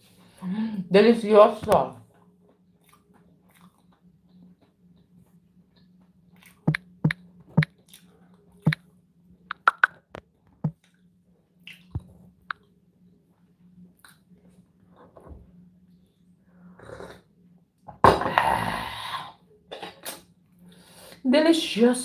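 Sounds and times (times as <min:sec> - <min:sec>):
faint low hum: 0:00.0 - 0:22.0
chewing clicks and wet smacks: 0:02.0 - 0:08.8, 0:09.5 - 0:12.7, 0:14.0 - 0:14.4.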